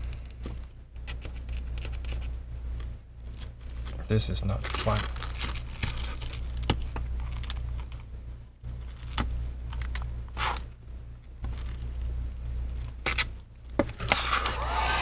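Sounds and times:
glass crackling and crunching: 4.6s - 8.0s.

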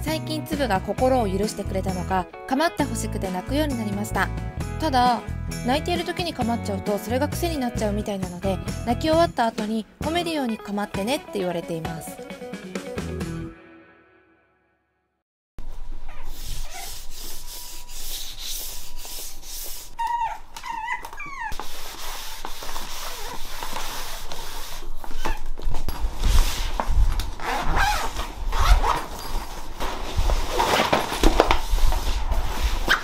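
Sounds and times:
rubbing and rustling handling noise: 15.6s - 33.0s
puppy whining: 16.0s - 17.0s, 20.0s - 21.6s.

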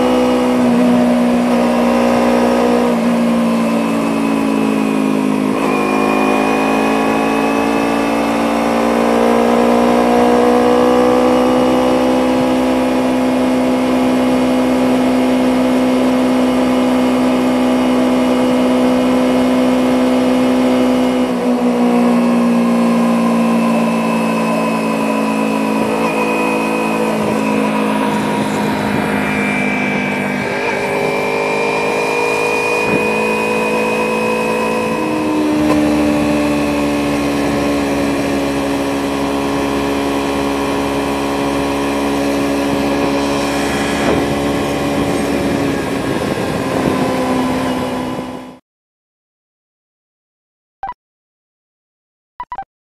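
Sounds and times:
motorcycle engine running: 0.0s - 48.6s
wind rush over microphone: 27.1s - 33.6s, 41.0s - 48.6s.

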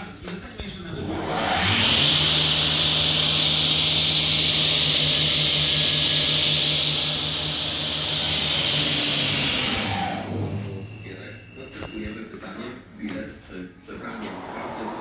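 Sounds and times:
panel saw running: 0.9s - 11.4s.

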